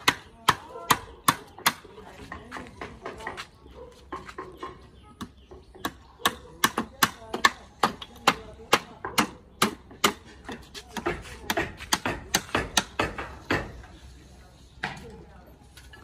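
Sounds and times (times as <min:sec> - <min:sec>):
hammer knocking on wooden boards: 0:04.2 - 0:13.8.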